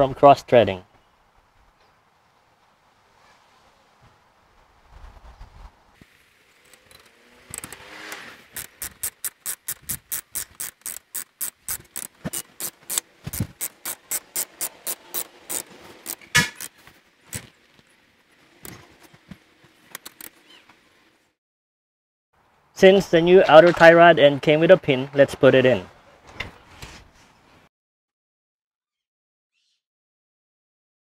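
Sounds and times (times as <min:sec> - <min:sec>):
ratchet wrench clicking: 0:06.7 - 0:17.5, 0:19.9 - 0:20.3
torque wrench click: 0:06.7 - 0:17.5, 0:19.9 - 0:20.3.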